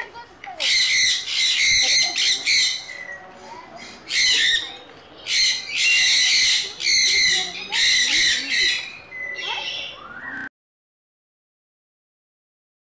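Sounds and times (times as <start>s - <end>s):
parrots screeching: 0.6s - 3.1s, 3.8s - 10.0s.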